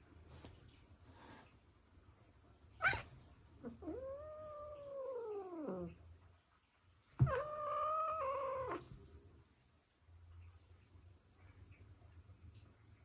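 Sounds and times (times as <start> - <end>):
cat yowling: 2.8 - 6.0, 7.2 - 8.9.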